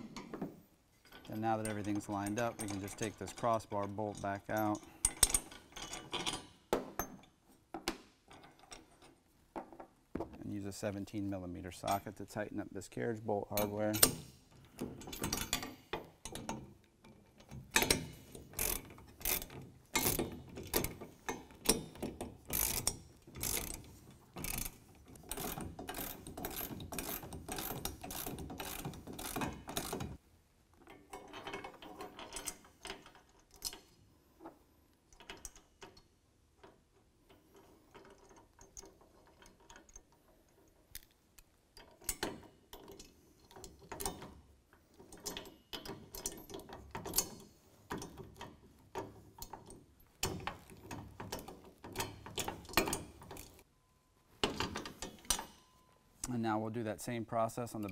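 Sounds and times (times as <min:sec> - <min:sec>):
hand ratchet clicking: 0:17.7 - 0:30.2.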